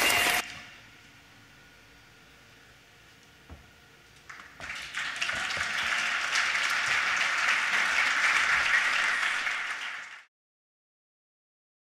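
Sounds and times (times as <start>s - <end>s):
audience applauding: 4.3s - 10.3s.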